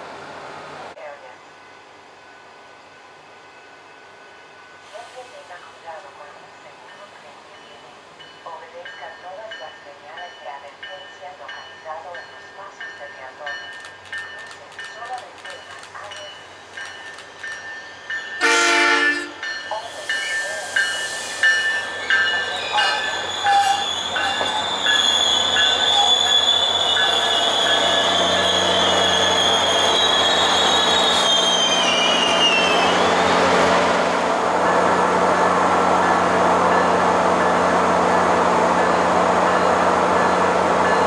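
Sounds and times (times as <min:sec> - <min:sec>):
train horn blast: 0:18.4 - 0:19.4
wheel and brake squeal: 0:21.0 - 0:33.3.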